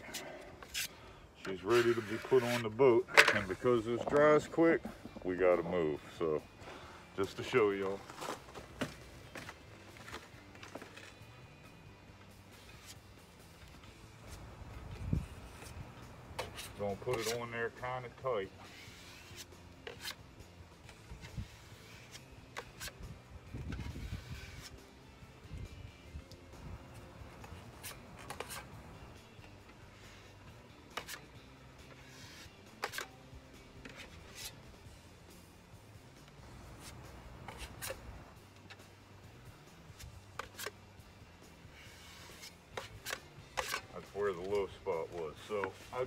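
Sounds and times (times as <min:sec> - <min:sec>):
plastic spreader scraping filler: 0:01.6 - 0:02.7.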